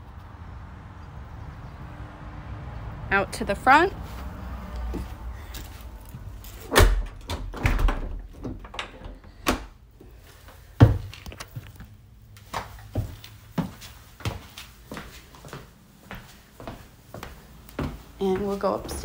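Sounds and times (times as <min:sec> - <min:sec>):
footsteps indoors: 0:04.0 - 0:06.7, 0:08.2 - 0:19.0
door knocks and thumps: 0:06.7 - 0:09.7.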